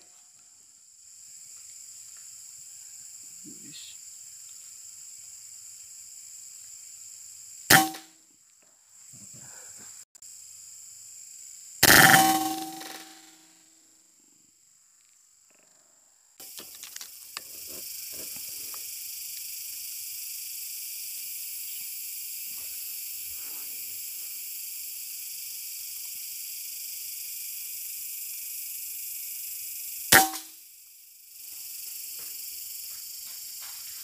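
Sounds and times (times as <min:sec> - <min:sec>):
high insect drone: 0:00.0 - 0:34.0
air rifle shot: 0:07.7 - 0:08.0.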